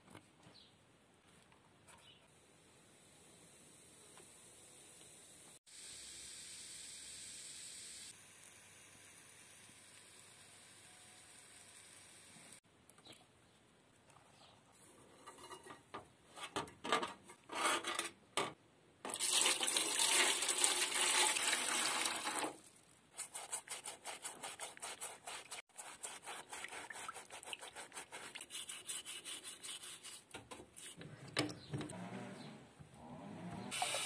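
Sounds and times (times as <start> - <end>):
wire rustling against metal tray: 14.8 - 18.5
water rushing into metal tray: 19.1 - 22.7, 33.7 - 34.0
bristle brush scrubbing metal: 23.1 - 31.0.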